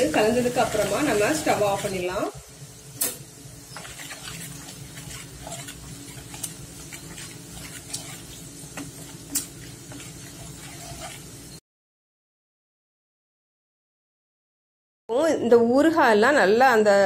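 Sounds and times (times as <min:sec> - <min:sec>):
oil bubbling and sizzling in wok: 0:00.0 - 0:11.6
spatula stirring in wok: 0:00.0 - 0:11.6.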